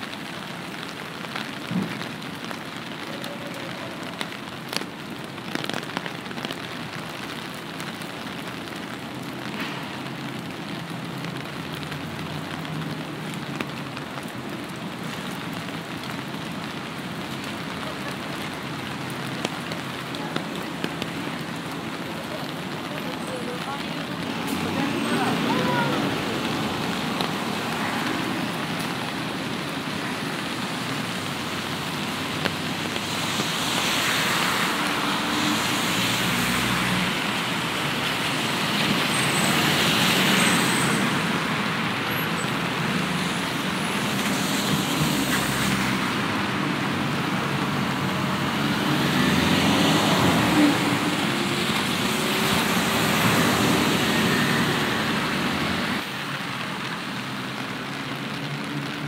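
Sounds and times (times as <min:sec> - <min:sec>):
tyres hissing on wet road: 0:00.0 - 0:59.0.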